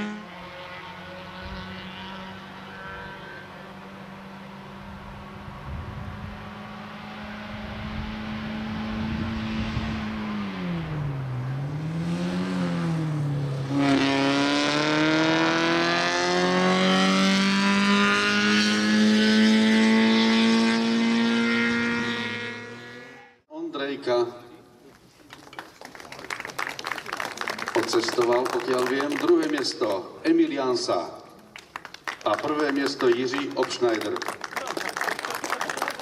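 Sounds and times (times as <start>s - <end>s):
race car engine running hard: 0.0s - 23.1s.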